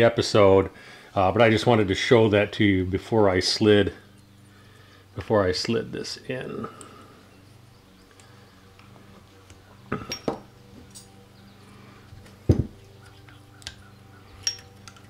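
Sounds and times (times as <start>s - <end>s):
faint steady hum: 0.0s - 15.0s
small metal parts clinking: 10.0s - 11.2s, 13.6s - 15.0s.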